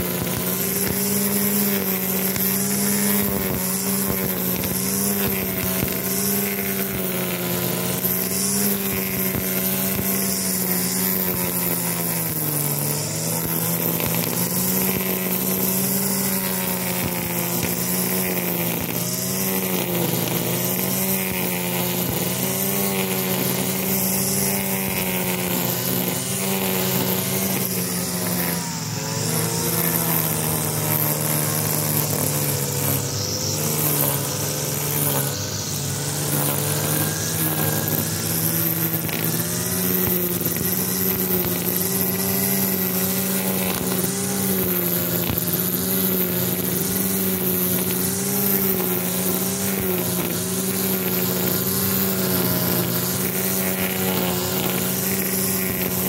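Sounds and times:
brush cutter running: 0.0 - 56.0
nylon line cutting grass: 0.0 - 56.0.

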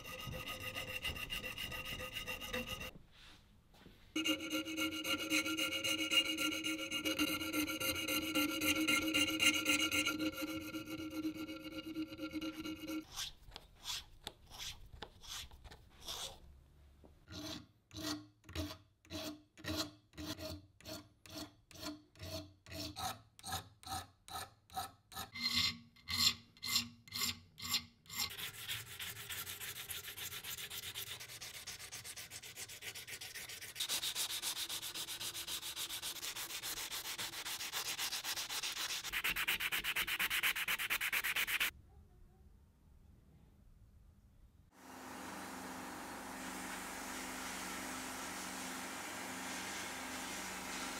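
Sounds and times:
abrasive rubbing on brass: 4.2 - 13.1.

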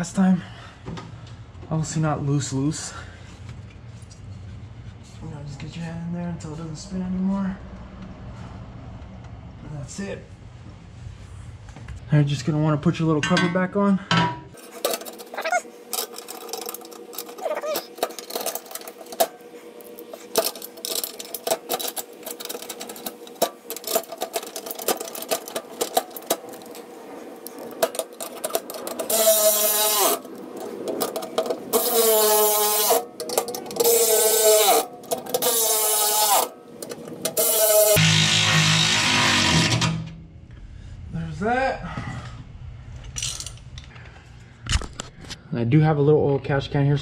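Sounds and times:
metal cover clicking and rattling: 14.6 - 19.4, 20.0 - 38.0
cordless ratchet running: 14.6 - 26.8, 27.4 - 38.0.

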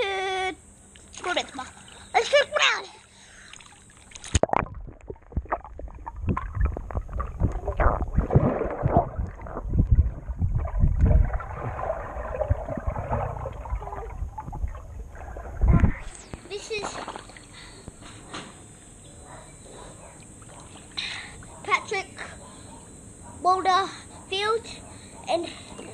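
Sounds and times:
underwater bubbling and gurgling: 3.7 - 16.2
dull knocks and low rumble: 4.6 - 16.1.

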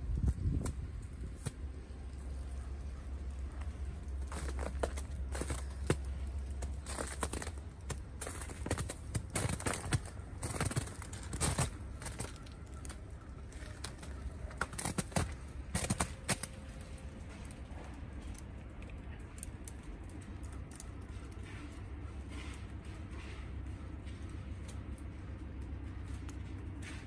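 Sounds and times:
low steady rumble: 0.0 - 27.0
footsteps crunching on icy snow: 3.2 - 17.9.

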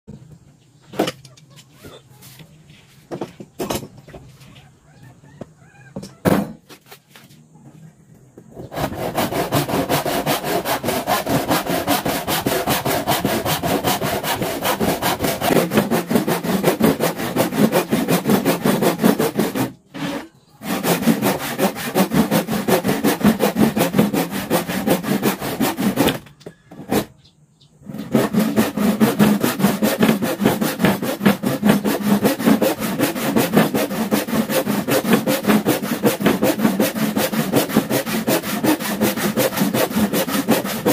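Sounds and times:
hand saw cutting wood: 8.6 - 27.2, 27.8 - 40.9.

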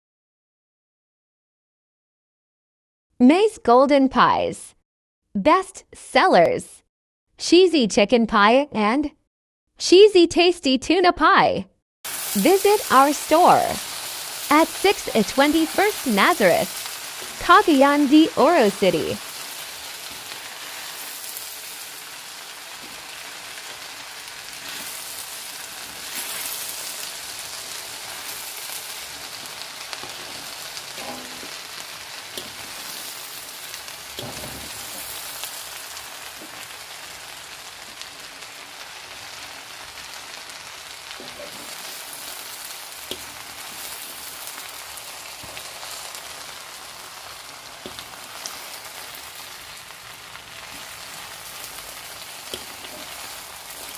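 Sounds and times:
filling sizzling in a pan: 12.0 - 53.9.

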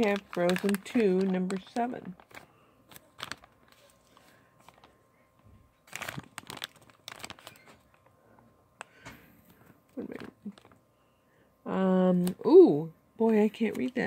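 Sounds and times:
plastic bag crinkling: 0.0 - 8.5, 10.0 - 10.9.

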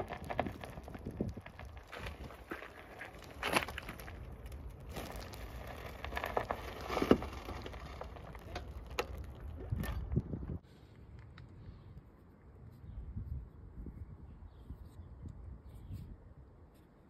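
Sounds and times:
gravel crunching: 0.0 - 11.8.

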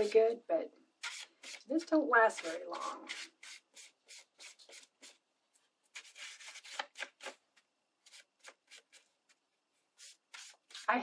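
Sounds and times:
paintbrush strokes on paper: 8.0 - 11.0.

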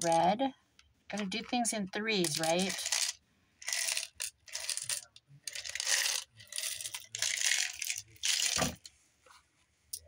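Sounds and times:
buttons rattling in a jar: 1.1 - 8.8.

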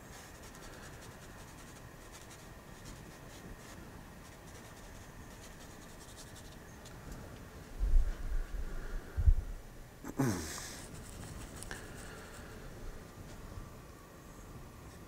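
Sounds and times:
paintbrush scratching on canvas: 0.0 - 6.6, 10.7 - 12.4.

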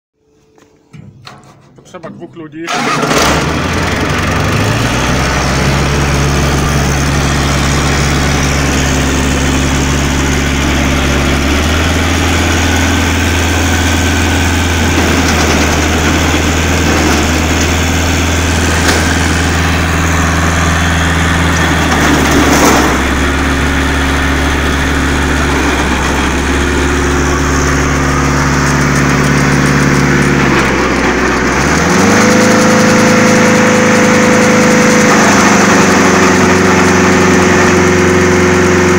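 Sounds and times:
wood chipper engine running: 2.7 - 38.9.

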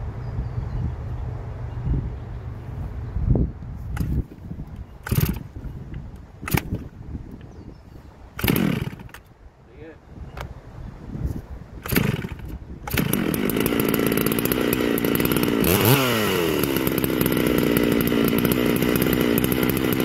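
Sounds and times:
chainsaw engine revving and idling: 4.0 - 4.4, 5.0 - 5.7, 6.4 - 6.9, 8.4 - 9.3, 11.8 - 20.0
starter cord pull: 4.0 - 5.5, 6.4 - 6.9, 8.4 - 9.3, 11.8 - 20.0.

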